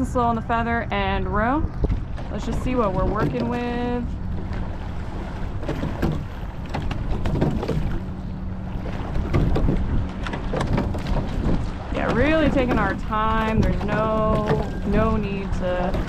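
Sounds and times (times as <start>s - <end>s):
water noise: 0.0s - 16.0s
wind on microphone: 0.0s - 16.0s
oars knocking in oarlocks: 1.8s - 8.1s, 8.8s - 16.0s.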